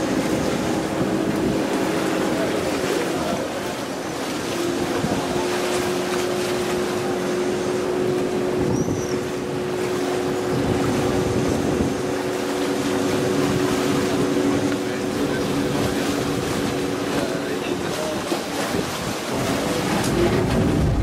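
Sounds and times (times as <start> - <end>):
boat engine humming: 0.0 - 21.0
wash of noise: 0.0 - 21.0.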